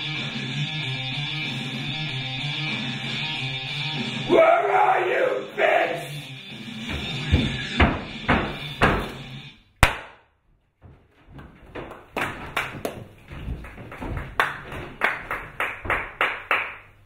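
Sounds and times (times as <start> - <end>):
stage music: 0.0 - 8.0.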